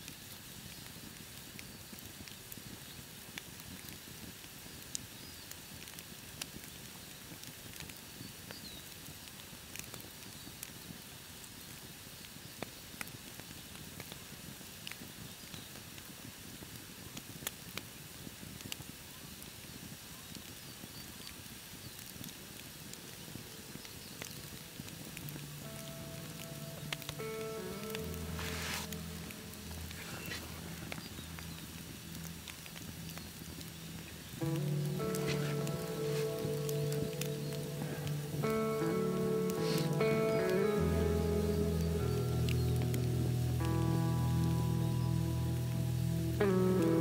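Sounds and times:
campfire crackling and popping: 0.0 - 47.0
music: 22.8 - 47.0.

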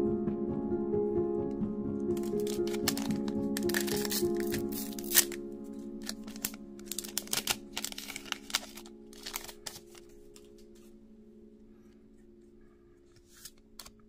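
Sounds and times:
background music: 0.0 - 14.0
card clicks: 2.1 - 5.4, 6.0 - 10.9, 13.2 - 14.0
foil wrapper crinkling: 2.1 - 10.9, 13.2 - 14.0.

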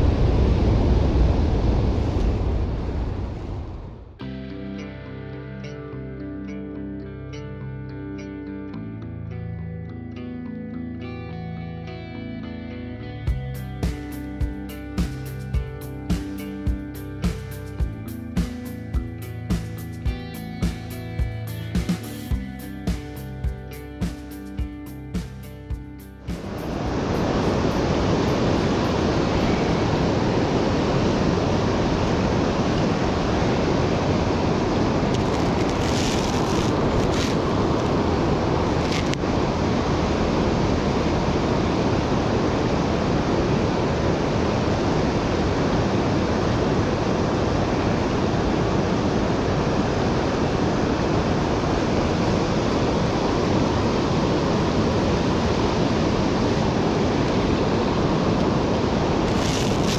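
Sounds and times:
river water rushing: 26.2 - 59.9.

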